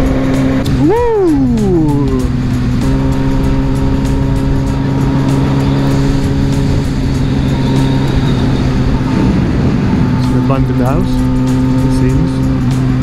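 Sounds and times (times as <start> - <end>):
motorcycle engine cruising: 0.0 - 13.0
rushing wind: 0.0 - 13.0.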